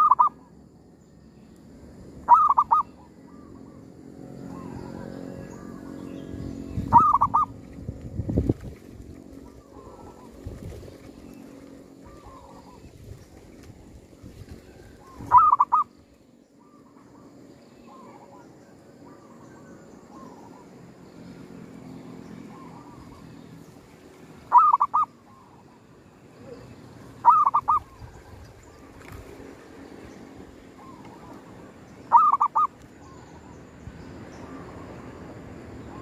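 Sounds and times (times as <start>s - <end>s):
dove cooing calls: 0.0s - 0.5s, 2.2s - 3.8s, 6.8s - 7.6s, 9.4s - 10.6s, 12.0s - 13.0s, 14.7s - 16.0s, 24.5s - 25.7s, 26.4s - 29.0s, 30.7s - 33.5s.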